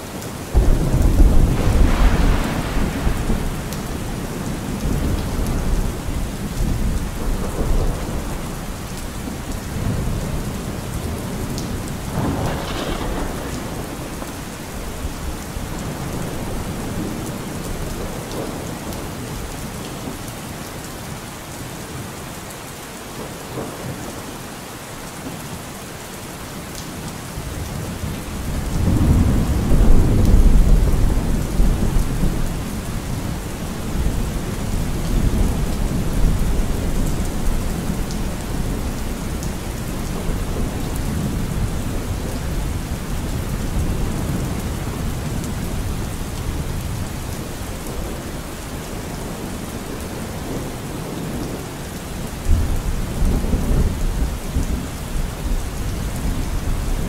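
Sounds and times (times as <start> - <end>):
steady rain: 0.0 - 57.0
thunder rolling: 0.5 - 6.0, 11.2 - 17.3.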